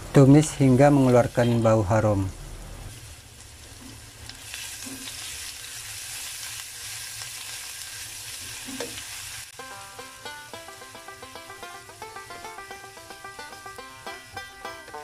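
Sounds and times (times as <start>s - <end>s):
food sizzling in hot oil: 2.4s - 12.2s
plucked-string music: 9.6s - 15.0s.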